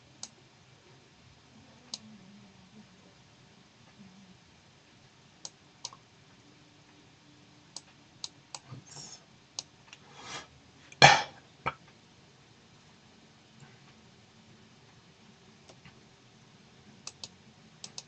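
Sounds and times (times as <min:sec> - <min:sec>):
computer mouse clicks: 0:05.4 - 0:06.0, 0:07.7 - 0:08.8, 0:15.6 - 0:16.0, 0:17.0 - 0:18.0
person coughing: 0:11.0 - 0:11.4.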